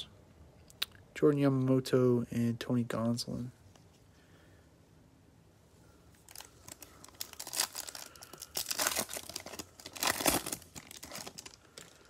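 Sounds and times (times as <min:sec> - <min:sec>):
wrapper tearing and crinkling: 0:06.2 - 0:12.0.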